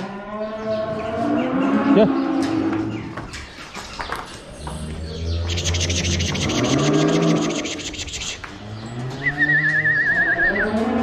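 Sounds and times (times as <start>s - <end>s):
cattle mooing: 4.9s - 11.0s.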